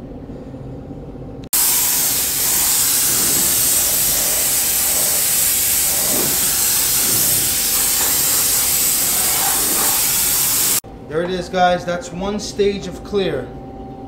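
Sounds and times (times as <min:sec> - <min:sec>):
paint spray gun hissing: 0:01.5 - 0:10.8.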